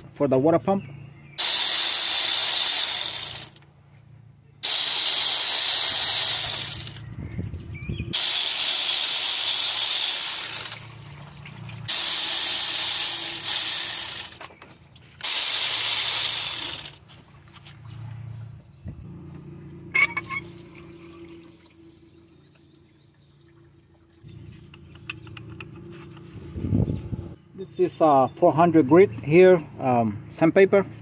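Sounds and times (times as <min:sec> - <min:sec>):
air ratchet hissing: 0:01.4 - 0:03.6, 0:04.6 - 0:07.0, 0:08.1 - 0:10.9, 0:11.9 - 0:14.5, 0:15.2 - 0:17.0.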